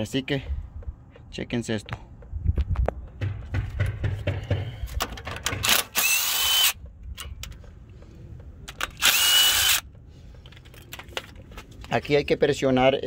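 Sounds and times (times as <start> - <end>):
tool handling clicks and knocks: 0.8 - 6.0, 6.8 - 9.0, 9.8 - 12.0
cordless power tool whining: 5.6 - 6.8, 8.9 - 9.9.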